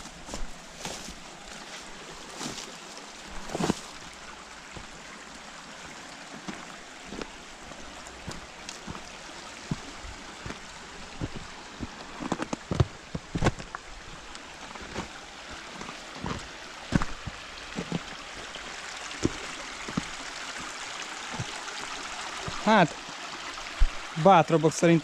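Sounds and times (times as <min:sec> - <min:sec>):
mountain stream rushing: 0:00.0 - 0:25.0
sharp clicks and thumps: 0:12.2 - 0:13.7.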